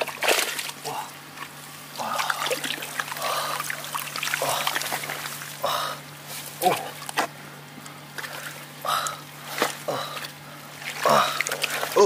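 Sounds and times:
hands splashing in muddy water: 2.0 - 5.7, 8.2 - 12.0.

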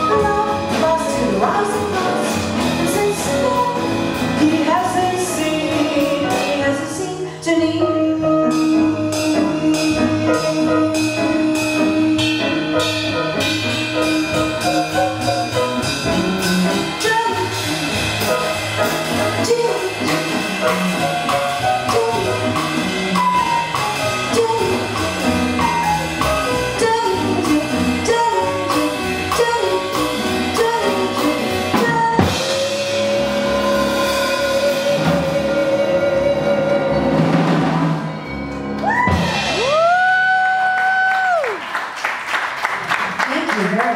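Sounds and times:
woman singing jazz: 0.0 - 38.0
upright bass: 0.0 - 41.5
drum kit: 0.0 - 43.9
piano: 0.0 - 43.9.

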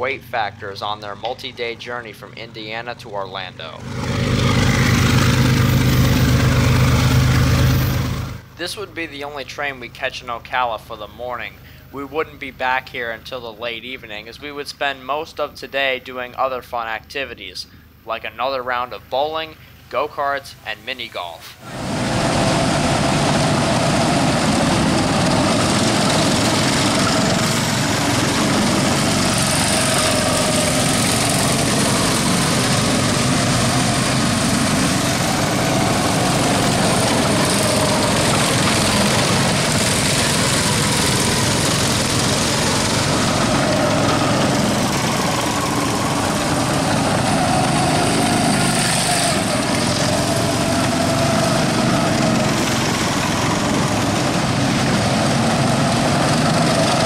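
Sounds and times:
go-kart engine running: 3.7 - 8.5, 21.6 - 57.0.

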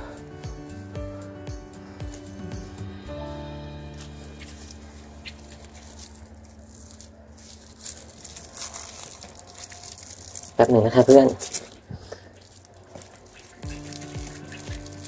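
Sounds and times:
background music: 0.0 - 11.6, 12.5 - 15.0
rustling of plastic string: 3.9 - 15.0.

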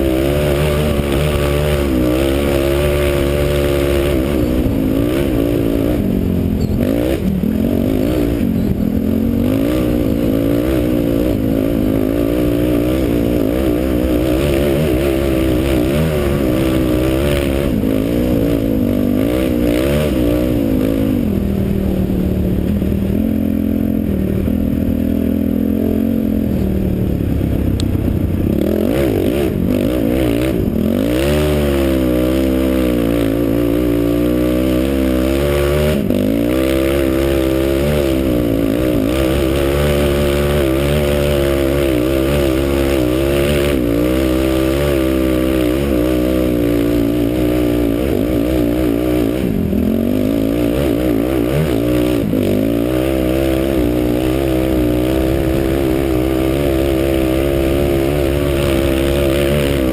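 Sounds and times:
quad bike engine revving: 0.0 - 59.9.

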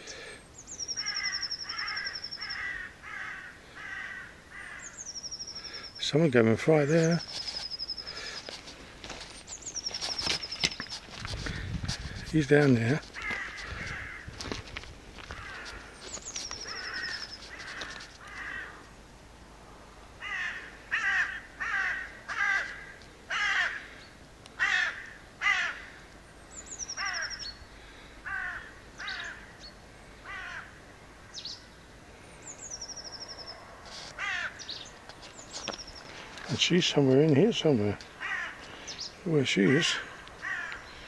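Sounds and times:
crows cawing: 0.0 - 5.8, 13.0 - 18.9, 20.2 - 26.2, 26.9 - 29.6, 30.2 - 30.8, 34.1 - 34.8, 38.0 - 41.0.

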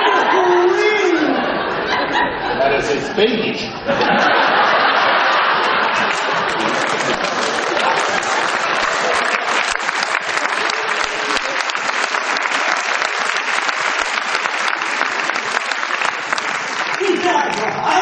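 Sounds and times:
audience applauding: 4.0 - 18.0.

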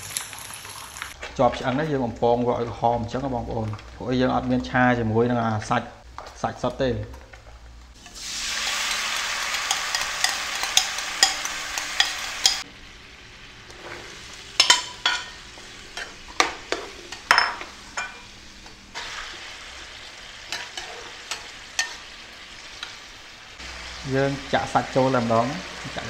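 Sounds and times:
sauce sizzling in frying pan: 7.9 - 26.0.

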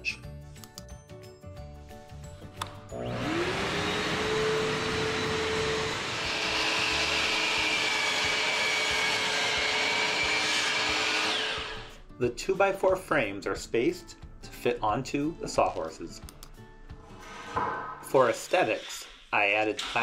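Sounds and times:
shop vacuum motor running: 2.9 - 12.0.

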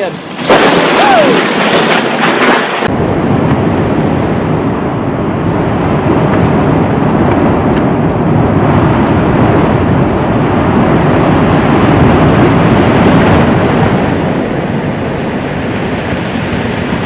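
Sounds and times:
lava spattering with rushing gas: 0.0 - 17.0.

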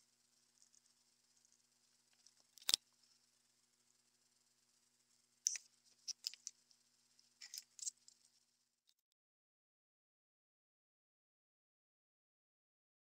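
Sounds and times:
metal tools laid on bench: 5.5 - 6.5, 7.4 - 8.0.

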